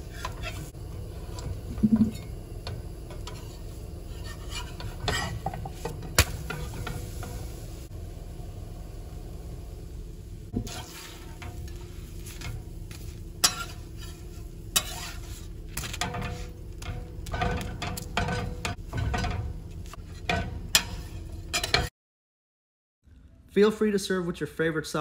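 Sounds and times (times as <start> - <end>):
spatula scraping a griddle: 0.0 - 7.6, 10.6 - 21.9
low steady hum: 0.0 - 21.9.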